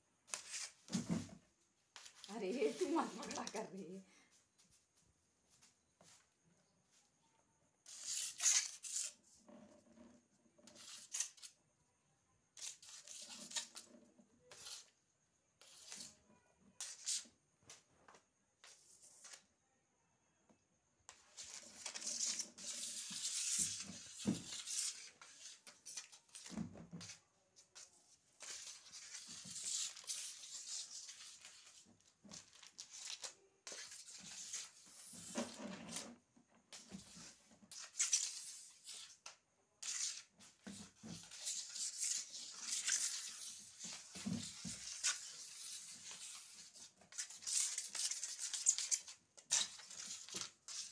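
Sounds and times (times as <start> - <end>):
cat lure scraping on concrete: 0.3 - 0.8, 7.8 - 11.6, 12.5 - 15.0, 15.6 - 17.3, 21.1 - 50.9.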